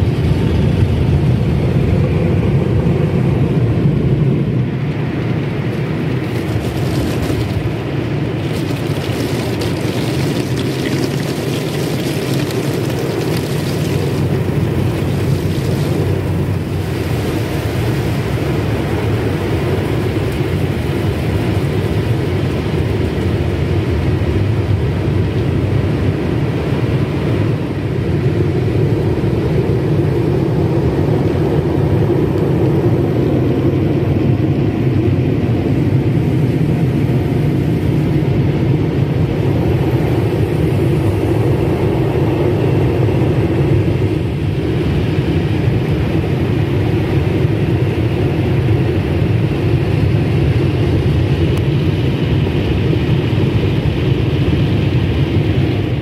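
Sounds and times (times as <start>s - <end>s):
car wash air blowers: 5.4s - 24.0s.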